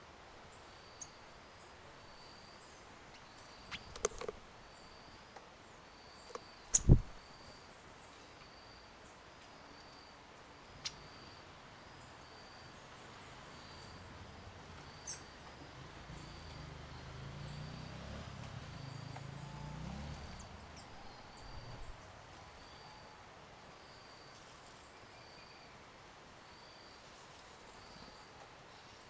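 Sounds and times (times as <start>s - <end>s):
background hiss: 0.0s - 29.0s
sharp clicks: 6.3s - 7.2s.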